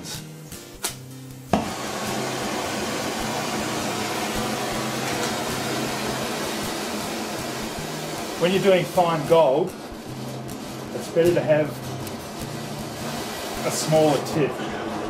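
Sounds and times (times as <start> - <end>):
torch flame hissing: 0.0 - 15.0
torch lighting pop: 0.8 - 1.8.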